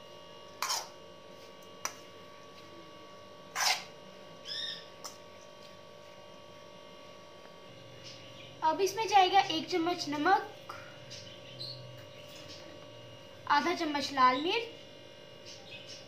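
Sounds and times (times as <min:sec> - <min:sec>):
metal spoon scraping metal bowl: 0:00.6 - 0:01.0, 0:03.5 - 0:03.9.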